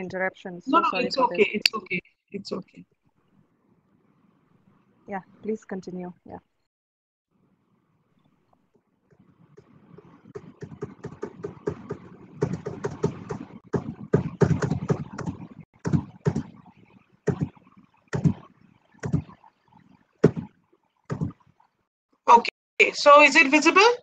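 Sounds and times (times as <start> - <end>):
choppy broken-up audio: 0.0 - 2.8, 8.2 - 20.5.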